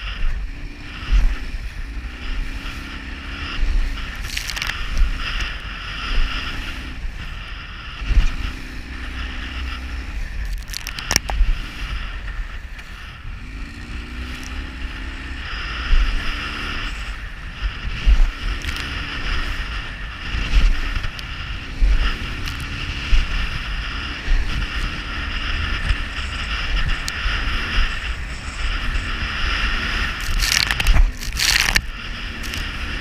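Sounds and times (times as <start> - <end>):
outboard engine running: 0.0 - 33.0
wind buffeting microphone: 0.0 - 33.0.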